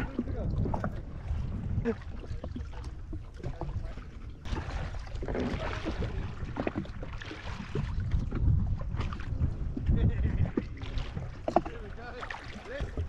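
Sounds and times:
water slapping against hull: 0.0 - 13.0
water splashing: 0.0 - 13.0.

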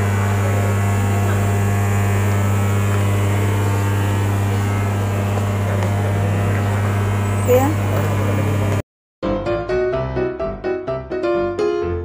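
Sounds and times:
steady low hum: 0.0 - 8.8.

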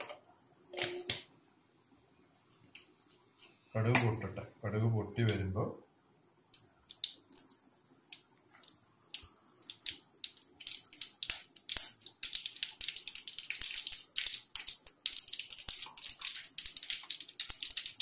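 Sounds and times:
mustard seeds popping in oil: 6.5 - 7.6, 8.6 - 18.0.

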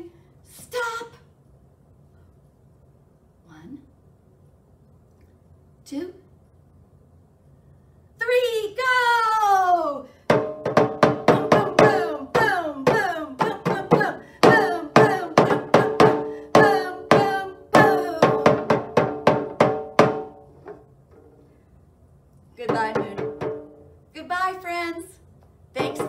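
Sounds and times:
frame drum beaten with mallet: 10.3 - 20.8, 22.6 - 24.0, 25.8 - 26.0.

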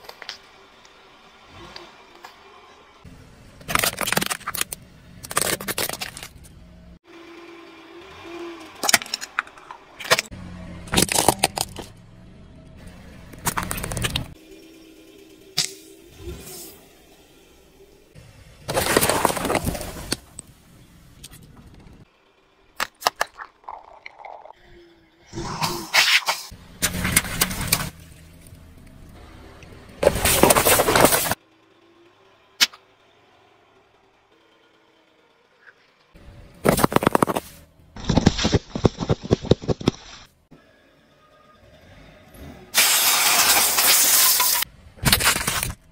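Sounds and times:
tyre crushing plastic objects: 3.6 - 6.5, 10.9 - 11.9, 18.7 - 20.3, 30.0 - 31.4, 36.6 - 40.2, 42.8 - 45.9
quiet engine rumble: 4.6 - 25.3, 26.5 - 30.2.

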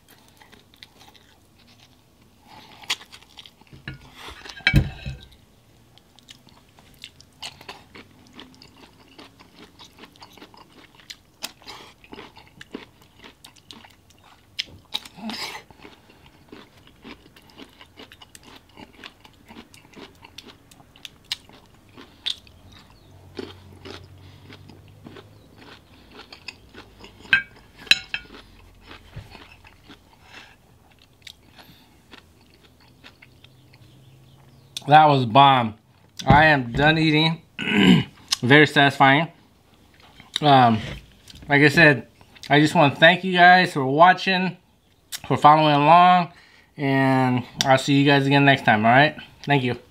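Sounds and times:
person chewing and crunching: 0.0 - 34.9, 39.7 - 41.5.

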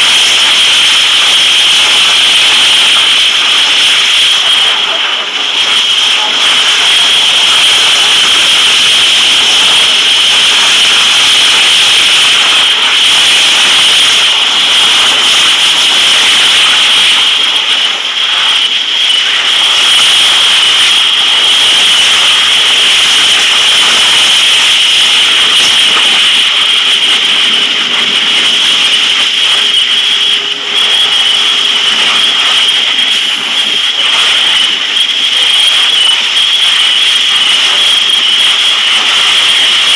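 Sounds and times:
fire hose spray: 0.0 - 39.9
propane fire roaring: 0.0 - 39.9.

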